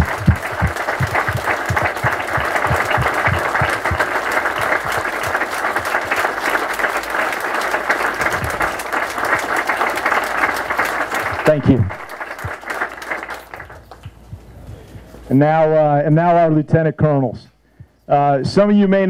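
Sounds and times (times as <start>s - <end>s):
audience applauding: 0.0s - 14.2s
heavy claps close by: 0.0s - 14.3s.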